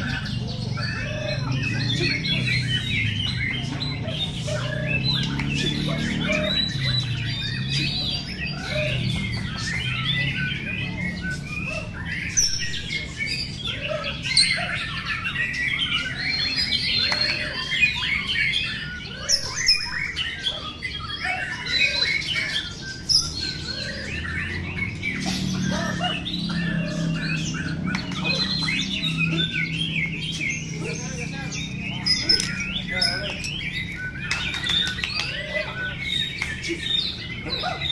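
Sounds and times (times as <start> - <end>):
songbirds whistling and trilling: 0.0 - 37.9.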